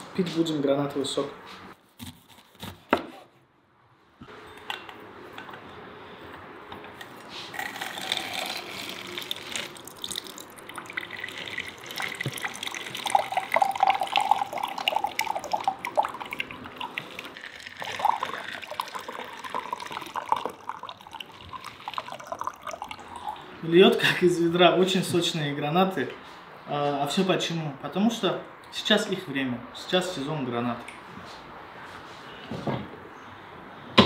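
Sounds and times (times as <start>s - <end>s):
juice pouring into glass: 7.5s - 23.5s.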